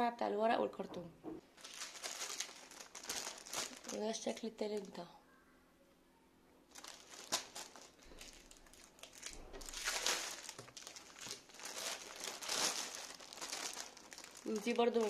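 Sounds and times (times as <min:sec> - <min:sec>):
plastic bags crinkling: 0:01.5 - 0:05.0, 0:06.7 - 0:15.0.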